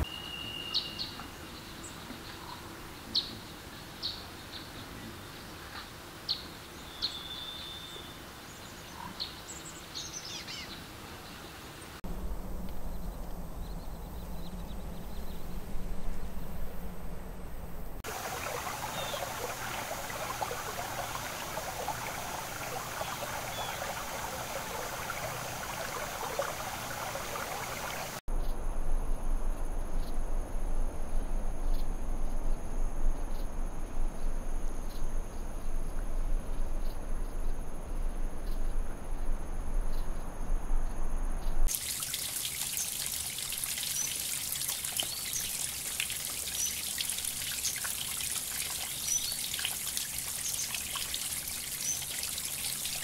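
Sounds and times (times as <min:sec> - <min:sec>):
low steady hum: 0:12.0 - 0:53.0.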